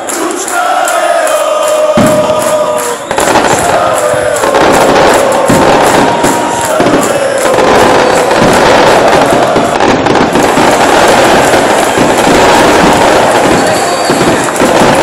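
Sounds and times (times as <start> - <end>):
stadium crowd voices: 0.0 - 15.0
dense rapid crackle: 3.1 - 15.0.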